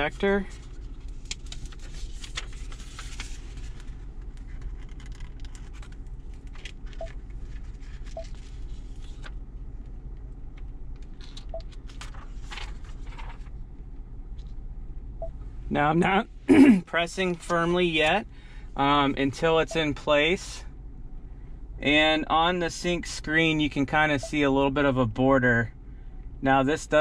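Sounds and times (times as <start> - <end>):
engine and heater hum: 0.0 - 27.0.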